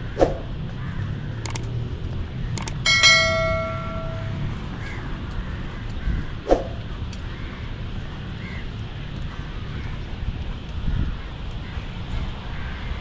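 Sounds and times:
metallic bell strike: 2.6s - 4.6s.

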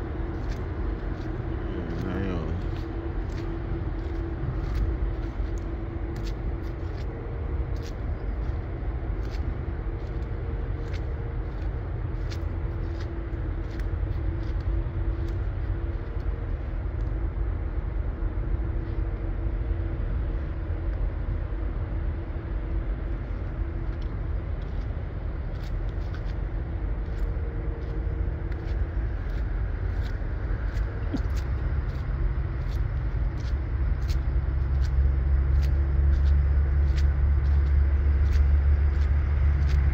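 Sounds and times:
car engine and tyre rumble: 0.0s - 39.9s
faint steady hum: 0.0s - 39.9s
light ticks: 27.0s - 39.9s.

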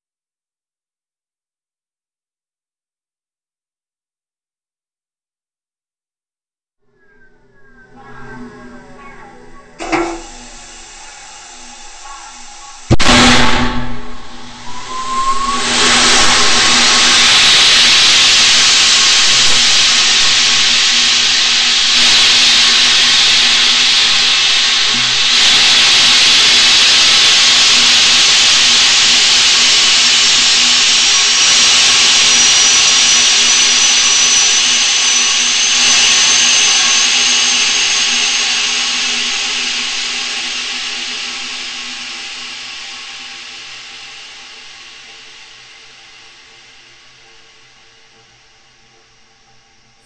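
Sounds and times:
high whistle rising in pitch: 6.9s - 45.7s
rocket motor rushing: 9.8s - 45.6s.

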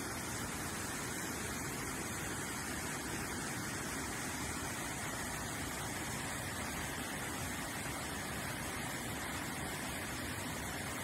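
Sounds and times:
waterfall rushing over boulders: 0.0s - 11.0s.

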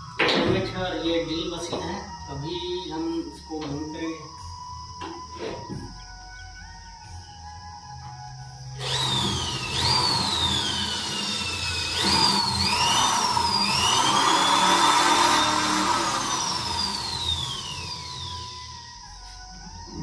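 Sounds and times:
electric drill boring plastic: 8.7s - 18.8s.

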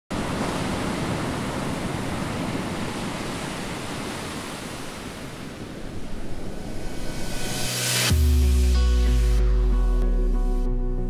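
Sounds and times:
waves breaking on a beach: 0.1s - 7.8s.

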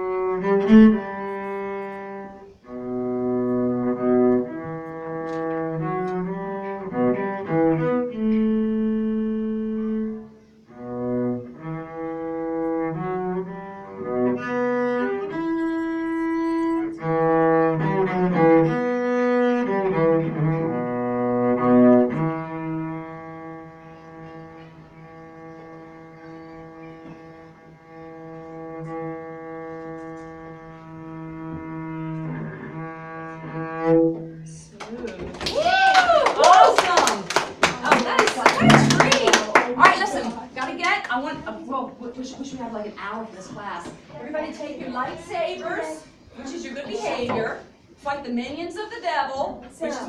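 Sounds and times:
solo cello slow melody: 0.0s - 34.6s, 38.6s - 39.2s.

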